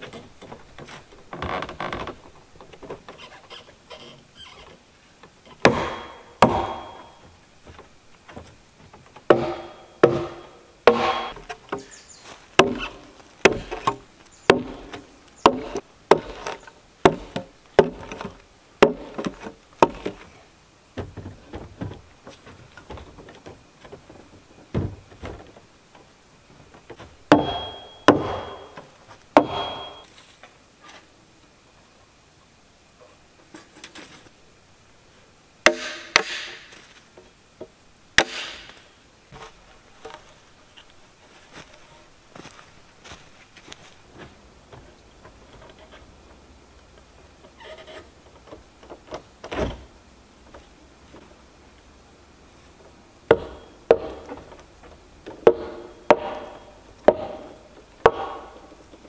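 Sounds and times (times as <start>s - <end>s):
tool knocking on log wall: 5.6s - 7.2s, 9.2s - 11.9s, 27.3s - 28.8s, 29.4s - 29.9s, 53.3s - 54.4s, 55.4s - 58.5s.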